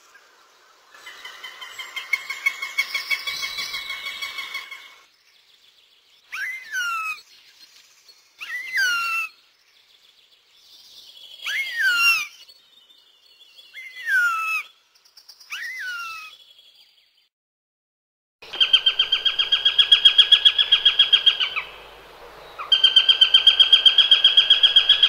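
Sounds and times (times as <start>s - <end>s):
small birds twittering: 0.0s - 17.3s, 18.4s - 25.0s
hawk wailing calls: 18.5s - 21.9s, 22.6s - 25.0s.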